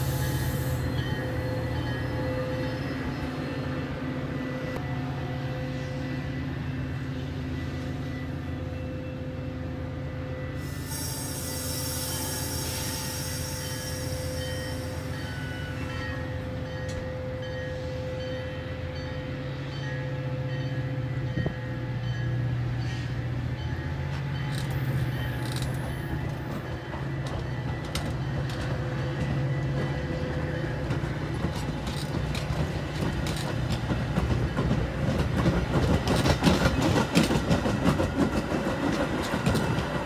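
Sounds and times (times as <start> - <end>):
train cars rolling past: 0.0 - 40.0
high wheel squeal: 10.6 - 15.8.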